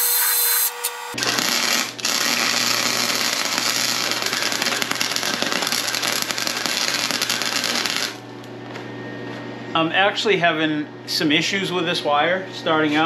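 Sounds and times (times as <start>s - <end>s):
arc welding crackle: 0.0s - 8.5s.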